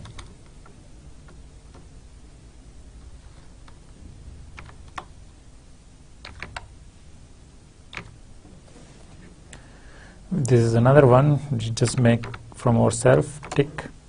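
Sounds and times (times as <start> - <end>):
keyboard keystrokes: 0.0 - 1.9, 4.6 - 5.1, 6.2 - 6.7, 7.9 - 8.2, 11.9 - 12.5.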